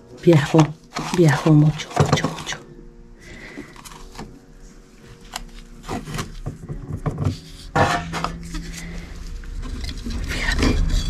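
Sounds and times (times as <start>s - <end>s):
objects rubbing and scraping on wood: 0.2s - 2.6s, 5.1s - 11.0s.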